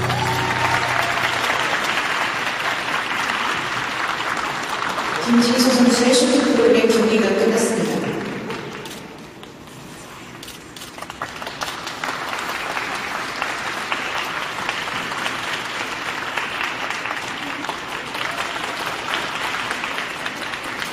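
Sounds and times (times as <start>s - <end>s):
audience applauding: 0.0s - 6.0s, 11.0s - 20.9s.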